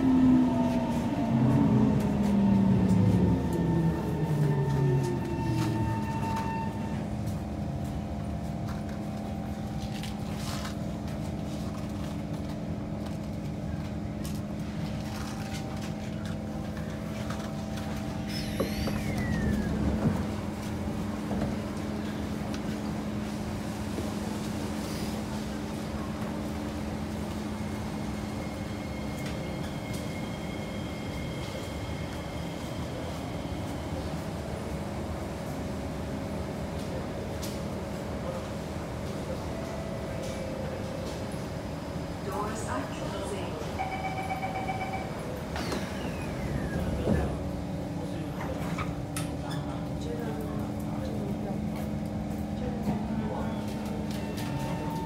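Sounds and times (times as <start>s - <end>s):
train rumble inside car: 0.0s - 55.0s.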